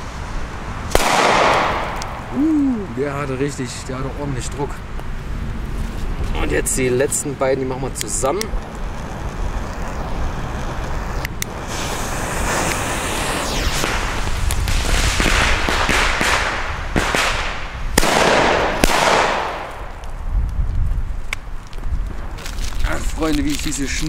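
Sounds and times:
rushing noise: 0.0s - 20.0s
firecracker bangs: 0.9s - 2.3s, 10.8s - 20.0s.

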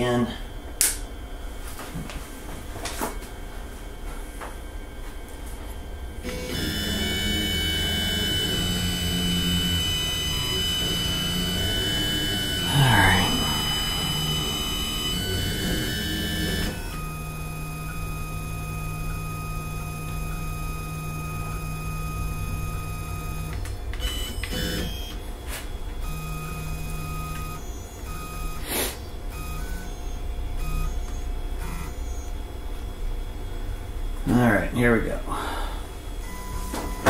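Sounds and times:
stepper motors whining: 6.2s - 32.5s.

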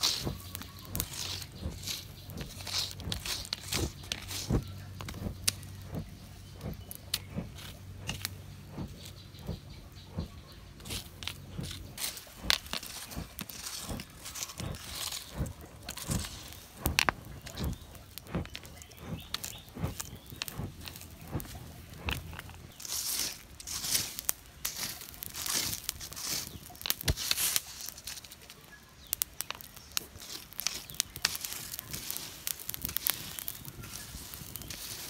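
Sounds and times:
low steady hum: 0.0s - 23.0s
burning bamboo and charcoal crackling: 0.0s - 35.0s
sharp pops from fire: 0.0s - 35.0s.

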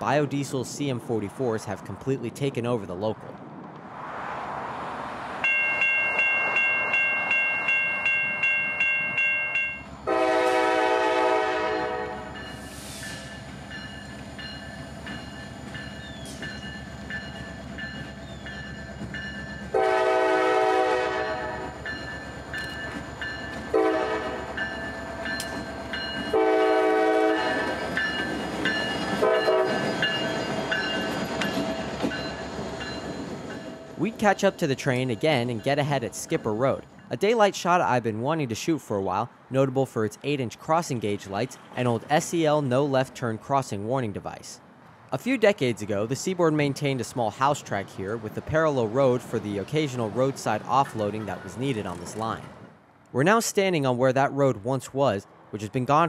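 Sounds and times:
bell ringing in quick pulses: 5.4s - 9.9s
locomotive air horn blasts: 10.1s - 12.4s, 19.7s - 21.7s, 23.7s - 24.5s, 26.3s - 27.6s, 29.2s - 29.8s.

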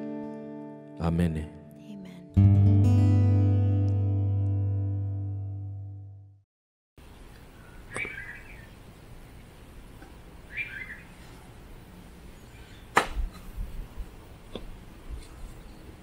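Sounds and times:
low background noise: 7.0s - 16.0s
bird chirping: 7.1s - 9.5s, 10.4s - 11.4s, 12.2s - 13.0s.

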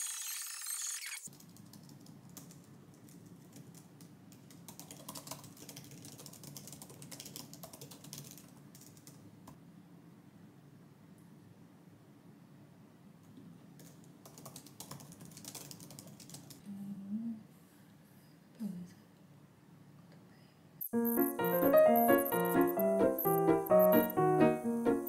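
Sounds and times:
laptop keyboard typing: 1.2s - 9.2s, 13.8s - 16.6s, 20.8s - 24.5s
background music: 21.0s - 25.0s.

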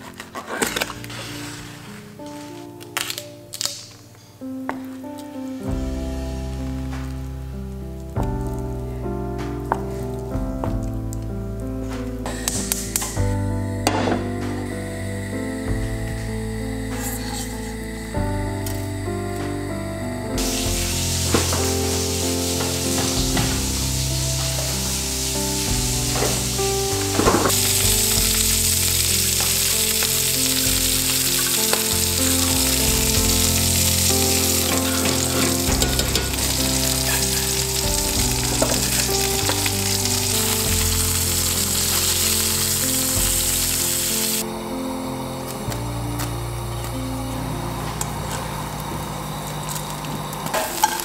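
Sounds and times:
slow background music: 0.0s - 51.0s
food sizzling in a frying pan: 20.4s - 44.4s, 48.8s - 51.0s.

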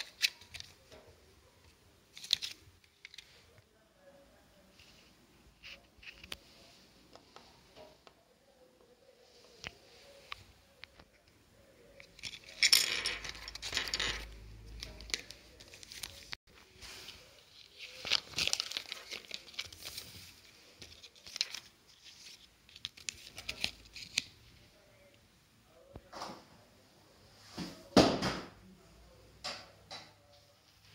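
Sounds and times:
paper crinkling and rustling: 0.0s - 1.0s, 2.1s - 3.6s, 14.7s - 24.3s.

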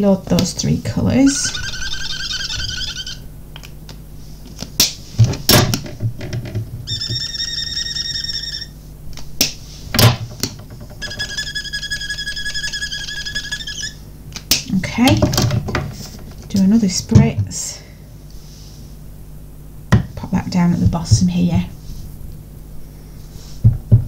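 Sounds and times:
stamping block squeaking: 1.3s - 3.2s, 5.2s - 8.7s, 10.0s - 14.0s.

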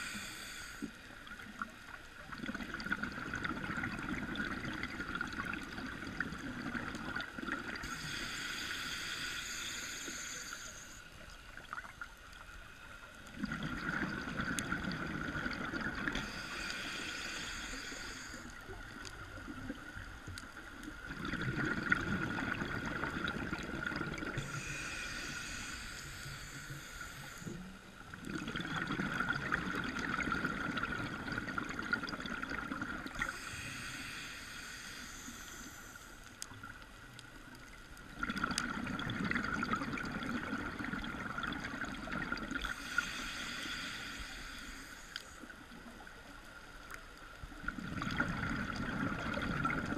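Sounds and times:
scuba regulator hissing inhalation: 0.0s - 1.2s, 7.8s - 11.3s, 16.1s - 18.7s, 24.3s - 27.8s, 33.1s - 36.3s, 42.3s - 45.5s.

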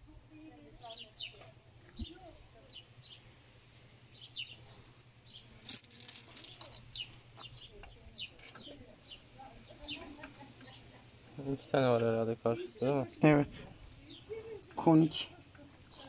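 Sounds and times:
small birds chirping: 0.3s - 5.6s, 6.4s - 16.0s
metallic clinks of hand tools: 5.6s - 7.2s.

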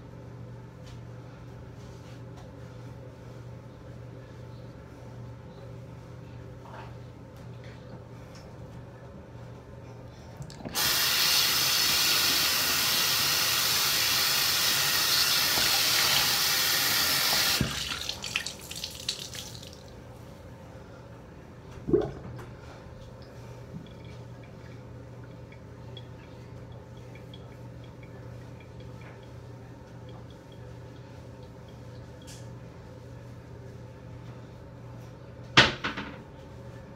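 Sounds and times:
faucet running into sink: 10.6s - 19.8s.

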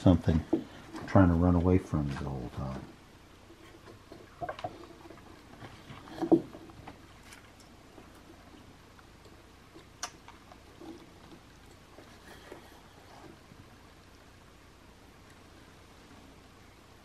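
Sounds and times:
knife cutting and scraping wood: 10.5s - 13.5s.

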